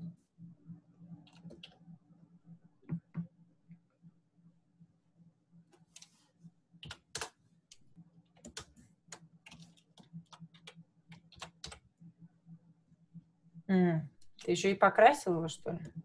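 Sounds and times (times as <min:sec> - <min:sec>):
keyboard and mouse clicking: 0:06.8 - 0:07.8, 0:08.4 - 0:11.8.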